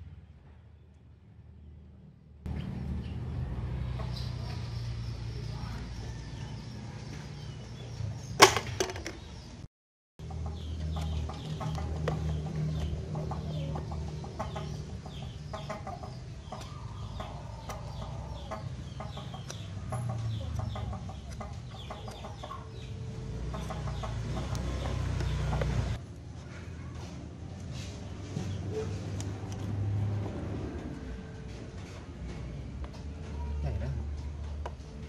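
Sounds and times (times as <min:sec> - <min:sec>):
chickens clucking: 0:10.2 - 0:26.0.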